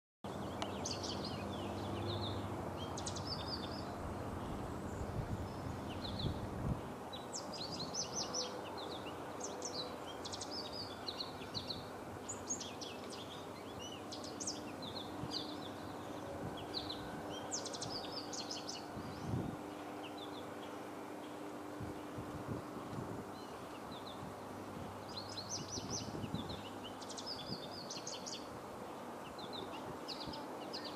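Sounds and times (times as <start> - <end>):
finch singing high twittering notes: 0.3 - 4.0, 7.1 - 21.4, 25.0 - 28.5, 29.2 - 30.9
steady background noise: 0.3 - 30.9.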